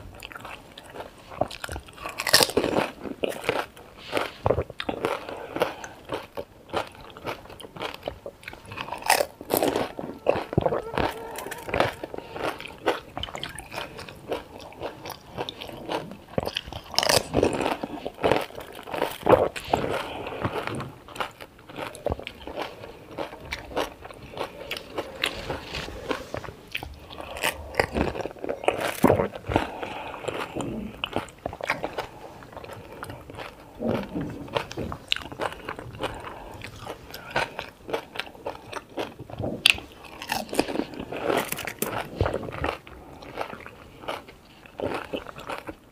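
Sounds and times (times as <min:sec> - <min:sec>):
chewing: 0:00.0 - 0:45.9
crisp shells crunching: 0:01.4 - 0:45.8.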